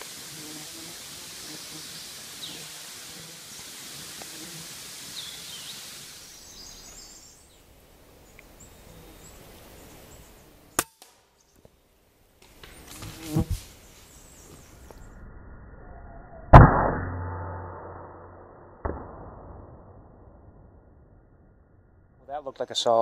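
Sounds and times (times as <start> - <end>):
steady outdoor hiss: 0.0 - 15.2, 22.2 - 23.0
bird chirps: 5.1 - 10.8.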